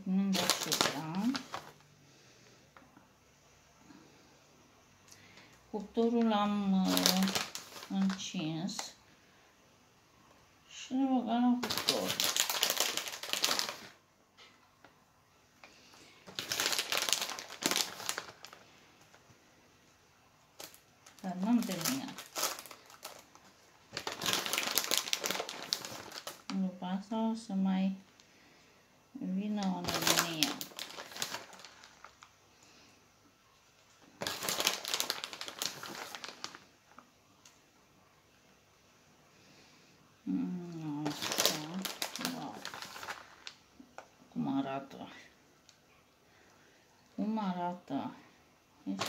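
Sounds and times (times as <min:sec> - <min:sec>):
plastic packet crinkling: 0:00.2 - 0:01.9, 0:06.0 - 0:09.0, 0:11.5 - 0:14.0, 0:15.6 - 0:19.3, 0:20.5 - 0:26.6, 0:29.5 - 0:32.4, 0:33.8 - 0:37.6, 0:40.8 - 0:44.2.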